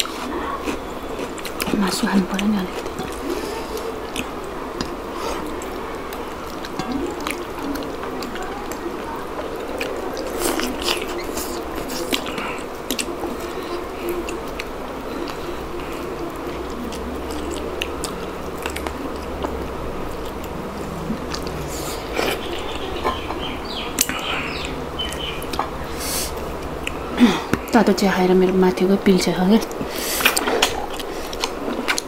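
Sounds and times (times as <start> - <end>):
chewing and biting: 0.0 - 27.7, 29.7 - 32.0
low background hum: 0.0 - 32.0
wet mouth sounds: 9.4 - 27.7.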